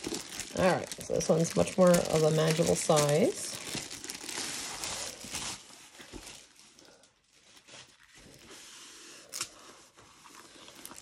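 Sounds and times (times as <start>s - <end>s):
sharp crinkle: 0.0s - 8.5s.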